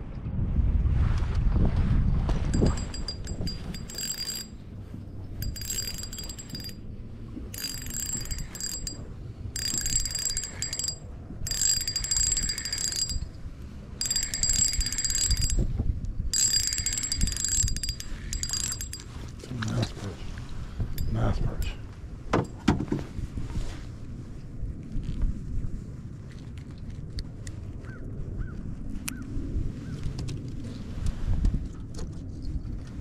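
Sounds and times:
fishing reel ratchet clicking: 2.6 - 4.6, 5.4 - 6.8, 7.6 - 9.0, 9.6 - 13.4, 14.0 - 15.7, 16.4 - 19.1.

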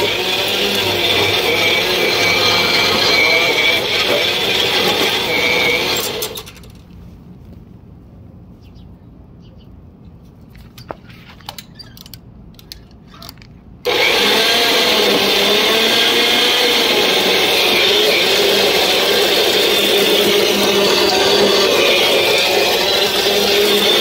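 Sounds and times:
tines churning soil: 0.0 - 6.5, 13.8 - 24.0
electric tiller motor whining: 0.0 - 6.9, 13.8 - 24.0.

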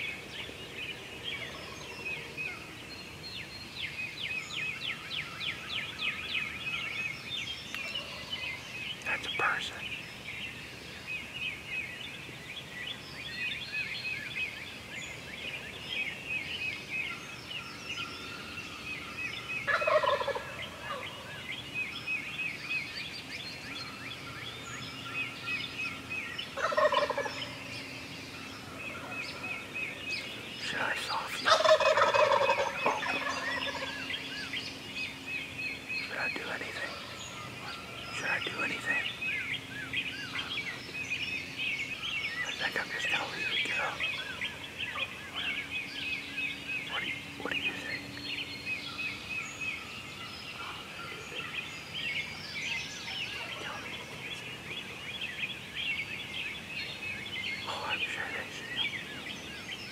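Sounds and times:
songbirds chirping: 0.0 - 59.9
turkey gobbling: 19.7 - 21.0, 26.6 - 27.4, 31.5 - 33.9.

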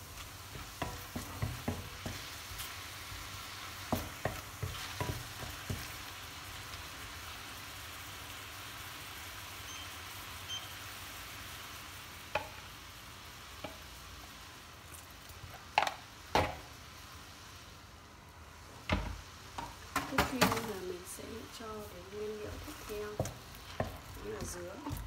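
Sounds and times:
mushrooms simmering in a pan: 0.0 - 25.0
wooden spatula scraping a pan: 0.2 - 6.0, 20.2 - 25.0.

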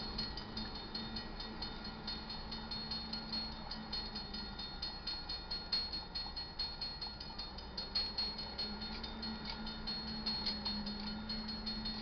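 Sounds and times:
railroad crossing bell ringing: 0.0 - 12.0.

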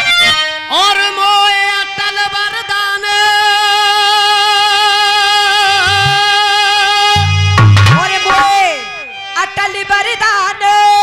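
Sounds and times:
man singing a long high note: 0.7 - 9.1.

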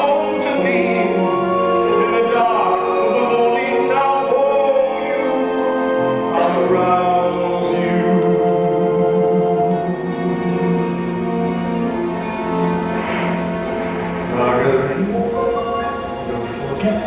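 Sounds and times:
man singing: 0.0 - 9.8
orchestra accompaniment: 0.0 - 17.0.

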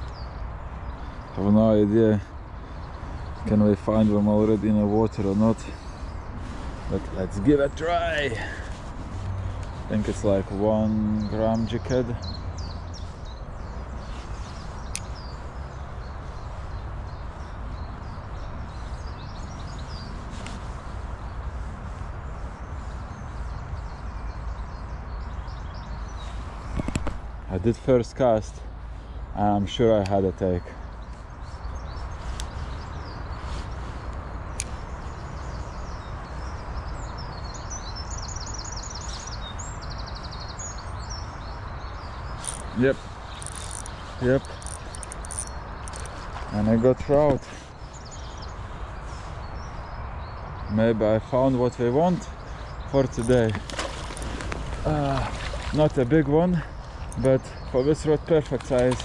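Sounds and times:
small birds chirping: 0.0 - 59.0
small bird singing and trilling: 34.6 - 59.0
river water rushing: 53.2 - 56.1.

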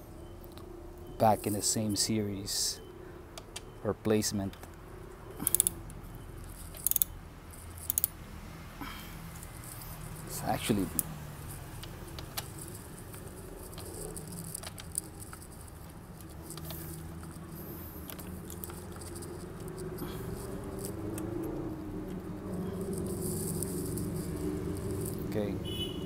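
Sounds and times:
wrench and bolts clicking: 5.4 - 5.8, 6.4 - 8.2, 10.6 - 25.2.

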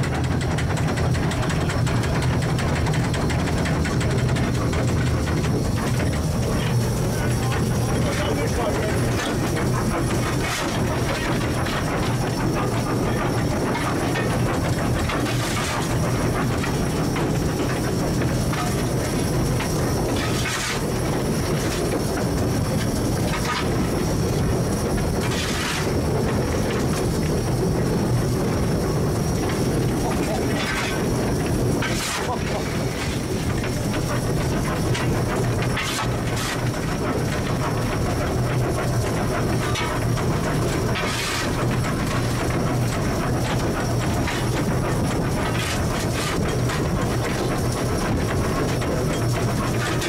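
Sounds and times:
steam locomotive rumbling: 0.0 - 50.0.

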